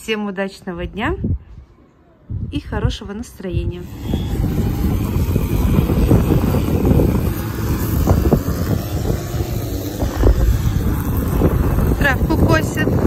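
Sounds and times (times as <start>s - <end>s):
wind buffeting microphone: 0.8s - 13.0s
string trimmers cutting grass: 3.8s - 13.0s.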